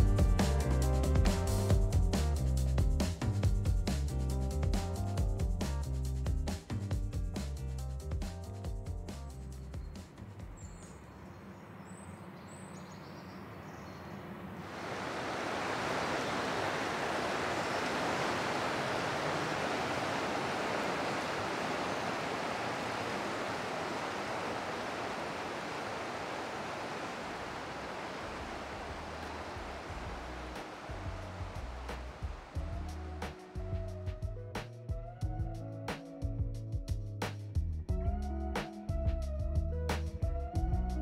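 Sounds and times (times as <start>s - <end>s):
river water rushing: 14.5s - 33.2s.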